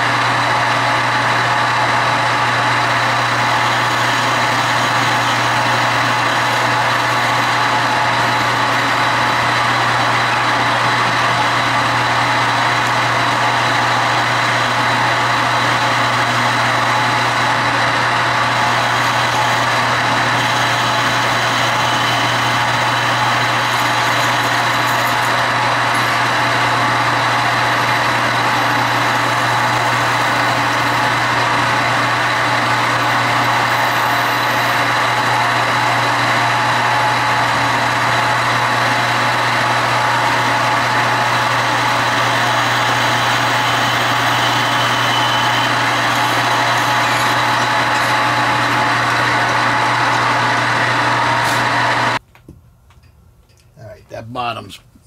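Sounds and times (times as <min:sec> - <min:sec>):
metal lathe hum: 0:00.0 - 0:52.2
high-pitched whine: 0:18.6 - 0:52.2.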